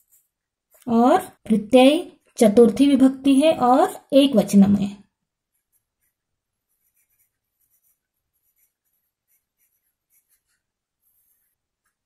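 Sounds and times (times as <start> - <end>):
pen scratching on paper: 0.0 - 0.9, 5.4 - 12.0.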